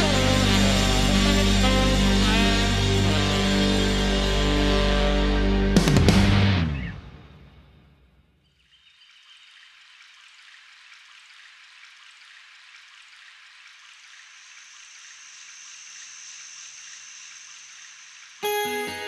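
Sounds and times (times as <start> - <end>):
faint high steady tone: 14.4 - 19.0.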